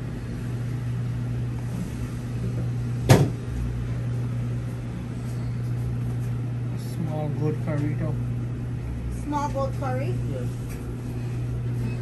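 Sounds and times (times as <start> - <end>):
low machine hum: 0.0 - 12.0
sharp knock: 3.1 - 3.4.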